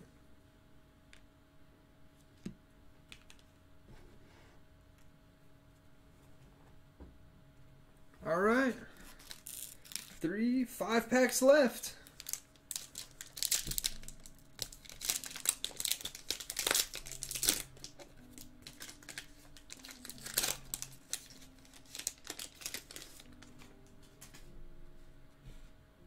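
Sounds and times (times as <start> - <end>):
foil wrapper tearing and crinkling: 9.0 - 10.2, 12.0 - 23.7.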